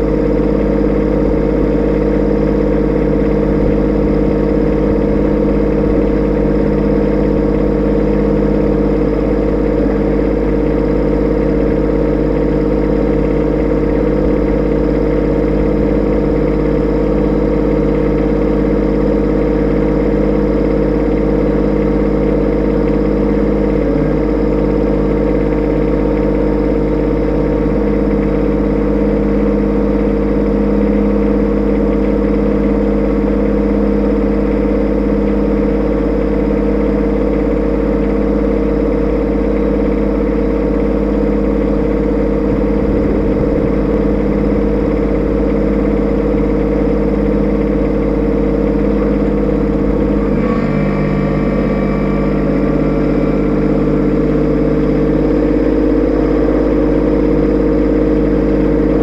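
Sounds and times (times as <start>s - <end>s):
tractor diesel engine idling: 0.0s - 59.0s.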